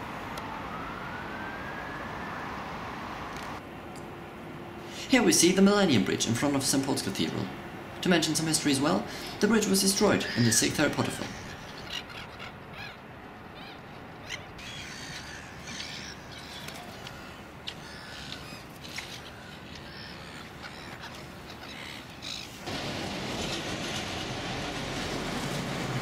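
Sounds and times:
gulls calling: 0:04.7 - 0:26.0
outdoor rush: 0:20.4 - 0:26.0.

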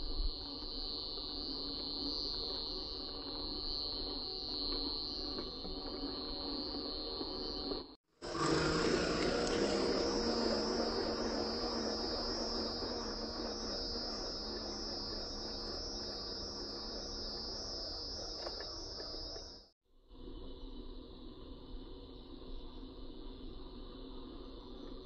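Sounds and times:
insects trilling: 0:00.0 - 0:19.7
small electric motor running: 0:08.2 - 0:19.6.

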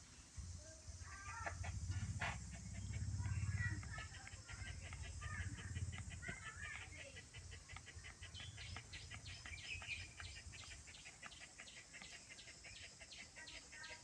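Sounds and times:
chickens clucking and chirping: 0:00.9 - 0:14.0
puppy growling: 0:01.3 - 0:12.2.

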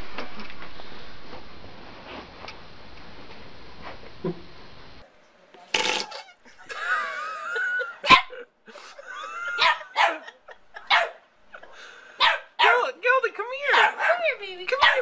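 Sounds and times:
dog whining: 0:06.0 - 0:06.5
small dog yapping: 0:13.7 - 0:14.2.

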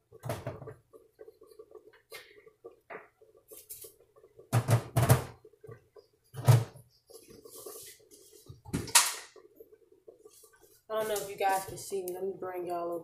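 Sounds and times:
kitchen knocks and thumps: 0:00.0 - 0:00.9, 0:04.4 - 0:06.8, 0:08.5 - 0:09.4.

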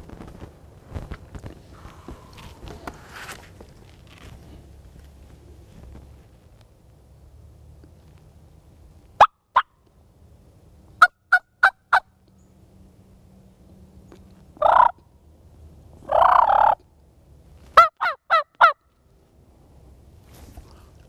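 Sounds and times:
turkey gobbling: 0:11.0 - 0:12.1, 0:14.6 - 0:15.0, 0:16.1 - 0:16.8, 0:17.8 - 0:18.8
turkey yelping: 0:11.0 - 0:12.1, 0:14.6 - 0:15.0, 0:16.1 - 0:16.8, 0:17.8 - 0:18.8.

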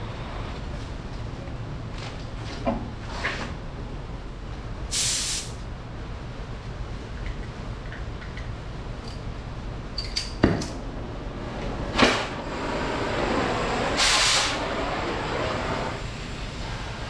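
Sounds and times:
torch flame hissing: 0:04.9 - 0:05.6, 0:11.9 - 0:17.0.

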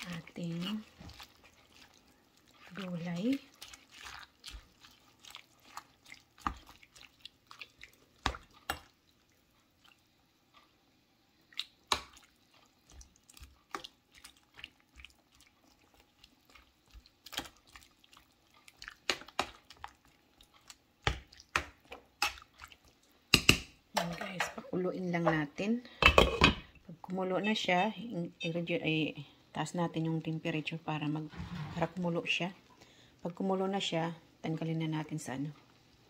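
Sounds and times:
small wet splashes: 0:00.0 - 0:10.0, 0:11.5 - 0:23.0.

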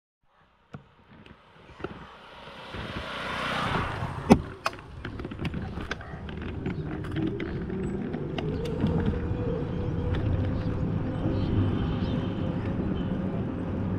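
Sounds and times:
low road rumble: 0:00.2 - 0:13.9
vehicle road noise rushing: 0:00.7 - 0:13.9
small rattles and clicks: 0:04.3 - 0:11.4.

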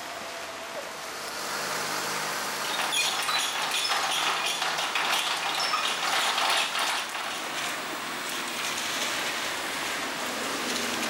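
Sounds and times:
rain falling on street: 0:00.0 - 0:11.0
raindrops ticking on awning: 0:02.7 - 0:09.9.

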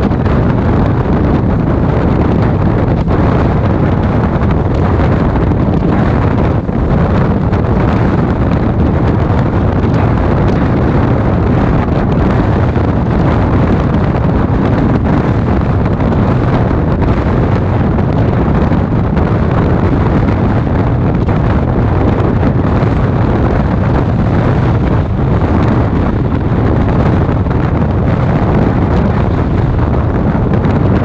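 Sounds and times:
train coach rumbling on track: 0:00.0 - 0:31.0
wind buffeting microphone: 0:00.0 - 0:31.0.

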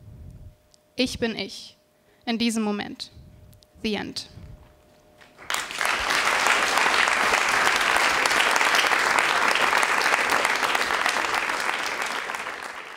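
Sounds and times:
audience applauding: 0:05.4 - 0:12.9.

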